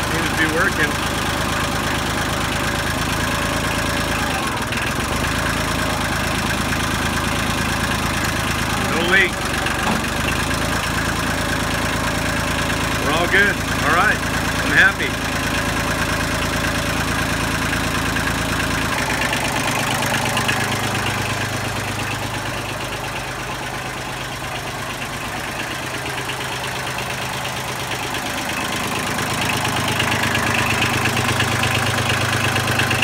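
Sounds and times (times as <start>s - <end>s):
diesel engine idling: 0.0s - 33.0s.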